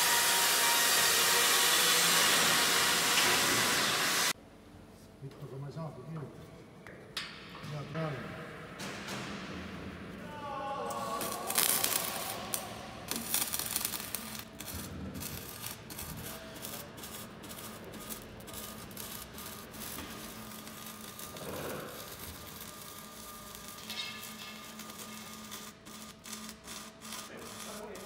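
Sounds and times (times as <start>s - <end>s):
arc welding crackling sizzle: 0.0s - 4.4s, 10.8s - 28.0s.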